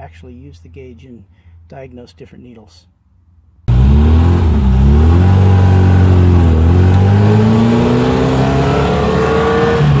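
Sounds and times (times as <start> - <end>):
car engine accelerating: 3.7 - 10.0.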